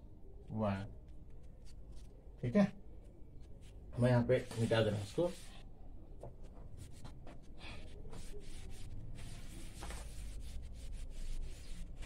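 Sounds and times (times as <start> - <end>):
duster swishing on chalkboard: 4.4 - 5.6, 6.5 - 12.0.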